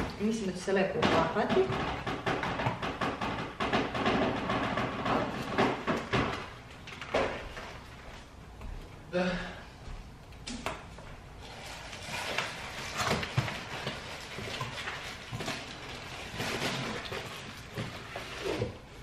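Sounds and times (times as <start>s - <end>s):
cardboard and paper rustling: 11.4s - 19.0s.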